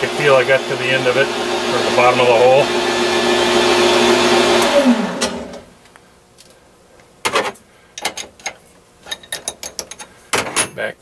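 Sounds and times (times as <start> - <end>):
lathe winding down: 0.0 - 5.7.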